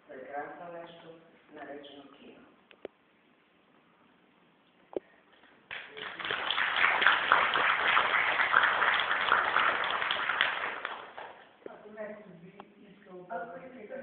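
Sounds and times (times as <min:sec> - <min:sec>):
audience applauding: 0:05.7 - 0:11.4.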